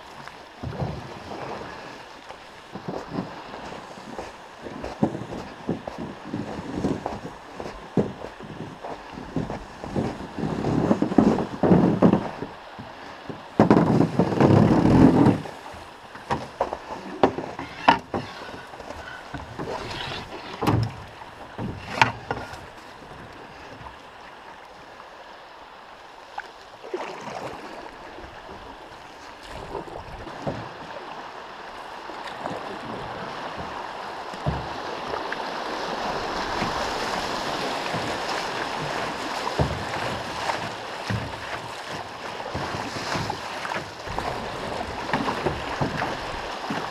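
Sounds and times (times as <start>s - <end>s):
canoe and paddle knocking: 0.0s - 24.0s, 28.2s - 46.9s
rushing water: 0.0s - 46.9s.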